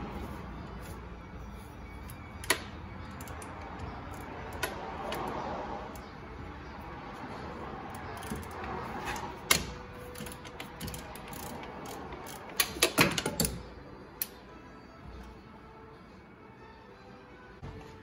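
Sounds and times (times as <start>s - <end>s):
hand ratchet clicking: 2.1s - 6.0s, 7.9s - 13.6s.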